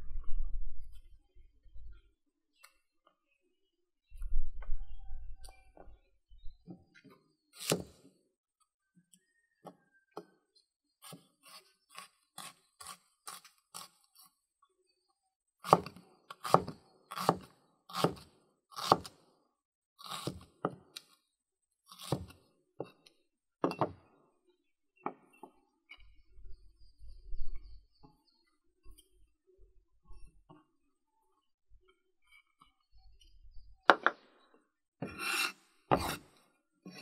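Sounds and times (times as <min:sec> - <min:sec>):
knife chopping on wooden board: 0:07.6 - 0:08.0, 0:15.6 - 0:19.2, 0:20.0 - 0:20.8, 0:22.0 - 0:22.9, 0:35.0 - 0:36.3.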